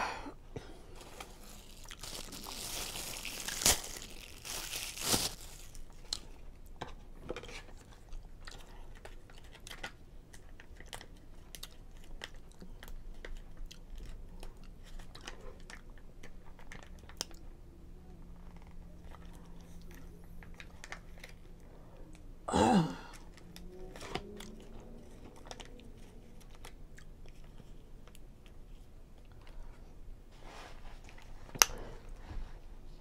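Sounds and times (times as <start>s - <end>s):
plastic packet crinkling: 1.0s - 6.0s
crunchy chewing: 1.0s - 6.4s
packet tearing open: 1.3s - 5.8s.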